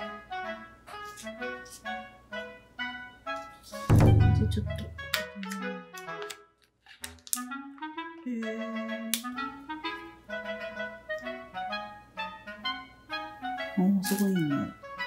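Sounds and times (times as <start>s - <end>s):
woodwind melody: 0.0s - 6.5s, 7.4s - 15.0s
light percussive hits: 3.7s - 5.4s.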